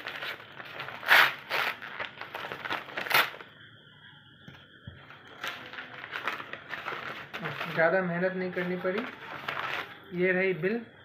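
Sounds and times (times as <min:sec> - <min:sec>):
paper envelope tearing: 0:00.0 - 0:03.4, 0:08.9 - 0:09.9.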